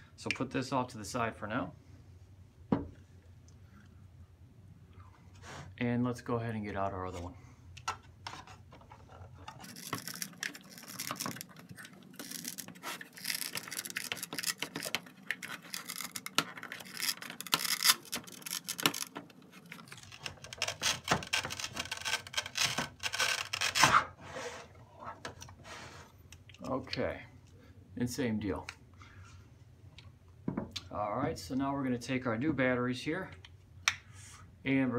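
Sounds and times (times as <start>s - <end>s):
velcro tearing: 9.6s - 24.1s.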